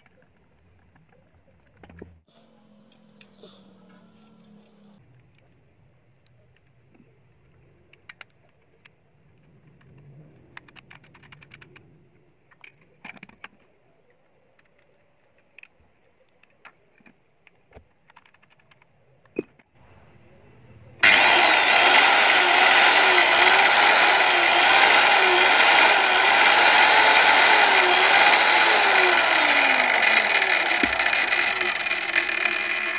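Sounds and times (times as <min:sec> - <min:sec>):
circular saw motor running: 0:21.0 - 0:32.9.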